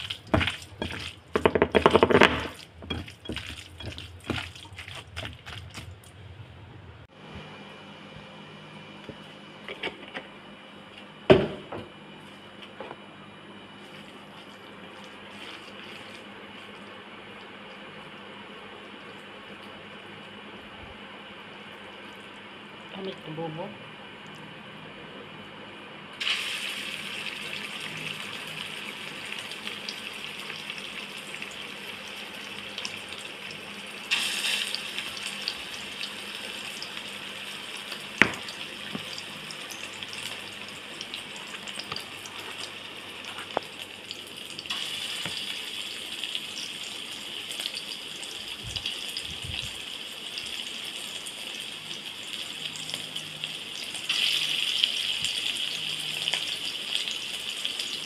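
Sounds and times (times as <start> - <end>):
oil sizzling in a wok: 0.0 - 5.8, 26.2 - 58.0.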